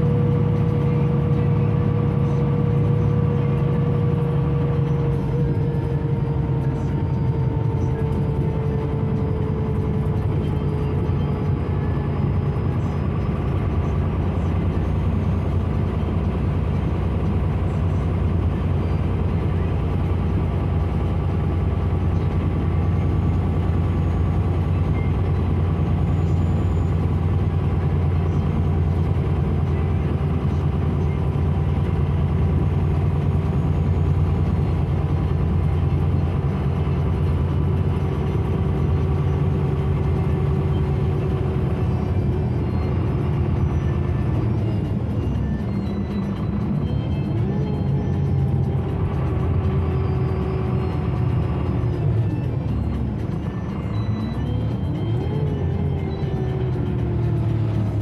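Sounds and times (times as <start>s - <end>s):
bus diesel engine drone: 0.0s - 58.0s
road noise: 0.0s - 58.0s.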